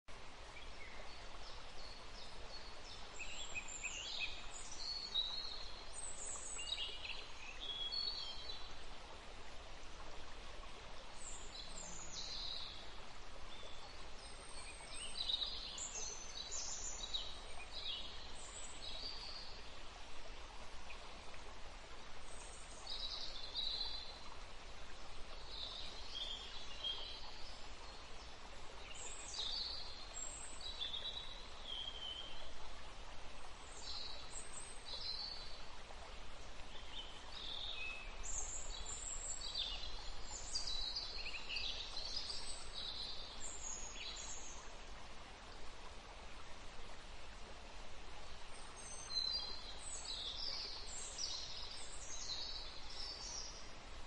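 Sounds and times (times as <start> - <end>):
steady background hiss: 0.1 - 54.0.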